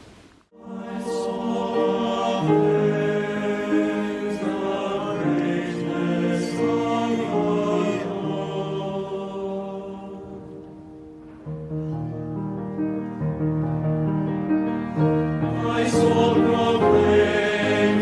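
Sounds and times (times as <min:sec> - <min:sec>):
slow choral singing: 0:00.5 - 0:11.6, 0:14.8 - 0:18.0.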